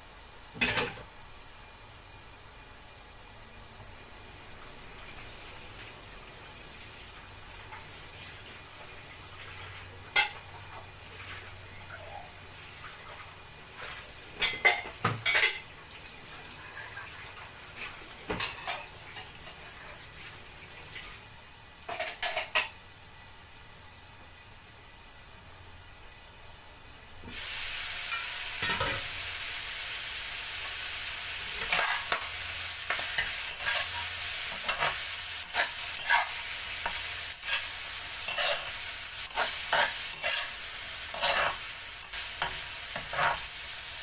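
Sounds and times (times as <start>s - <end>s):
steady hiss: 0.0s - 44.0s
dishes clinking at sink: 14.4s - 15.7s, 21.9s - 22.8s.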